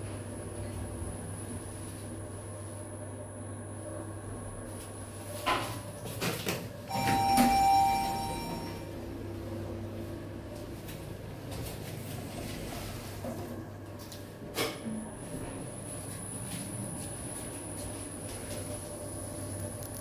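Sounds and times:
lift car hum: 0.0s - 20.0s
ringing arrival chime: 6.9s - 8.9s.

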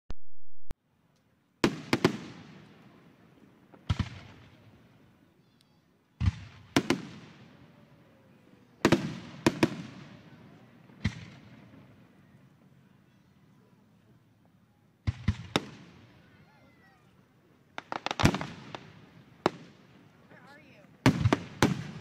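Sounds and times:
firework shells bursting: 17.7s - 18.9s.

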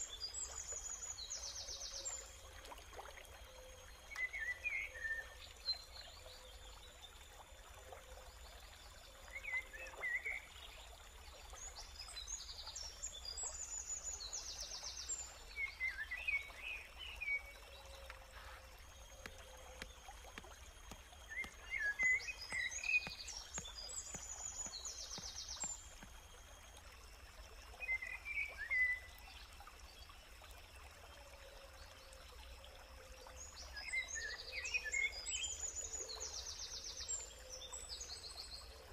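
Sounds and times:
stream water rushing: 15.0s - 29.6s
birds chirping: 17.1s - 26.1s.

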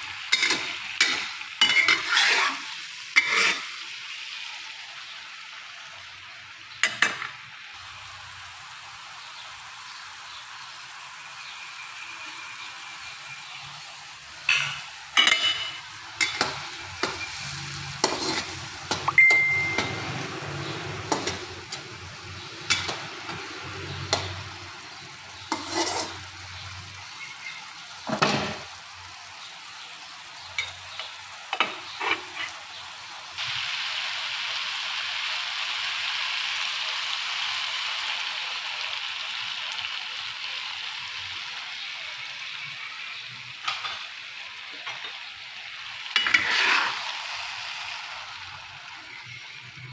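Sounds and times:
utensil scraping a wok: 0.0s - 4.0s, 14.5s - 28.8s, 30.6s - 32.9s, 46.0s - 48.3s
sauce sizzling: 0.0s - 49.9s.

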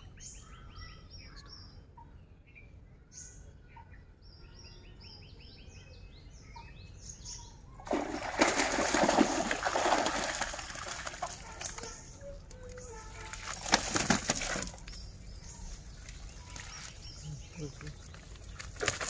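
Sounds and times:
water splashing: 7.8s - 11.9s, 13.0s - 14.8s.

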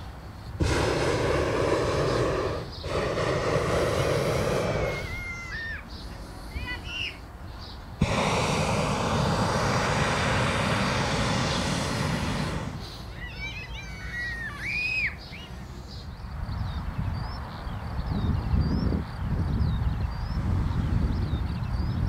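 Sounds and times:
propane burner blast: 0.0s - 7.0s, 8.0s - 15.2s
birds chirping: 0.0s - 22.0s.

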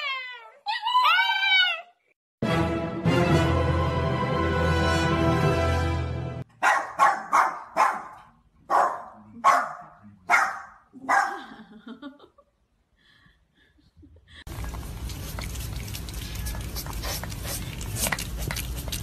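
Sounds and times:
small dog barking: 6.6s - 11.4s.

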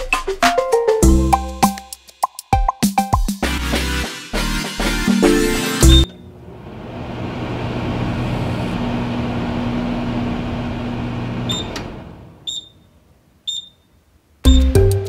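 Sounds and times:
short high beeps: 5.8s - 6.2s, 12.5s - 12.9s, 13.5s - 13.9s
microwave oven humming: 5.8s - 12.7s.

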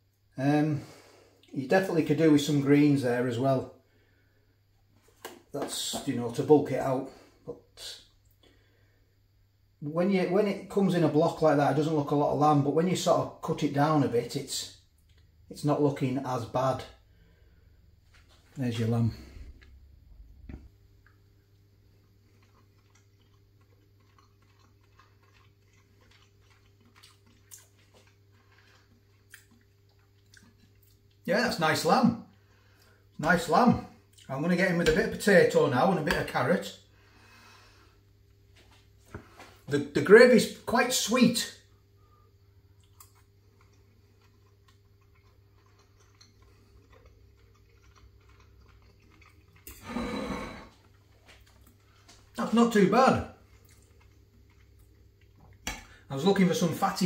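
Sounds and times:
faint room hum: 0.0s - 57.0s
soft eating clicks: 14.9s - 15.4s, 20.4s - 31.3s, 42.6s - 49.8s, 53.4s - 56.0s.

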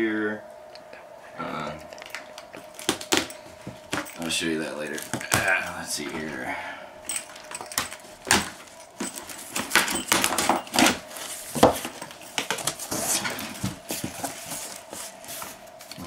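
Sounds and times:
packing tape ripping off cardboard: 2.1s - 4.1s, 7.8s - 14.9s.

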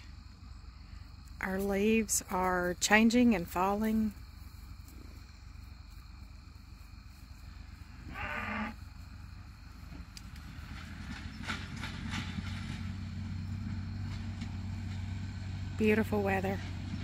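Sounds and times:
cow mooing: 8.0s - 8.8s
vehicle engine humming: 8.7s - 17.0s.

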